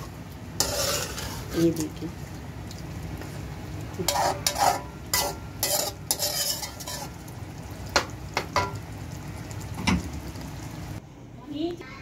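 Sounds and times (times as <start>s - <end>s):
food sizzling: 0.0s - 11.0s
metal spoon scraping a pot: 0.6s - 1.9s, 4.1s - 7.2s.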